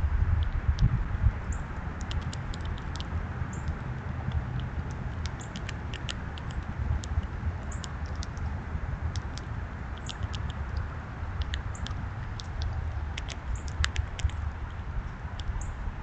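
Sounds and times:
low outdoor rumble: 0.0 - 16.0
light clicks and ticks: 2.0 - 8.5, 9.1 - 14.8.

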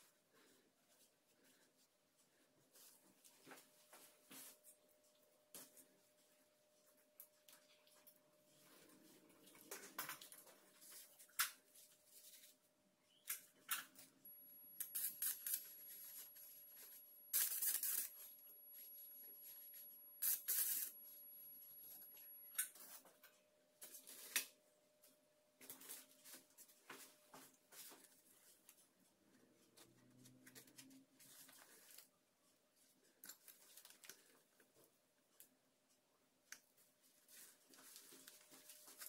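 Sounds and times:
high steady electrical whine: 14.2 - 22.7.

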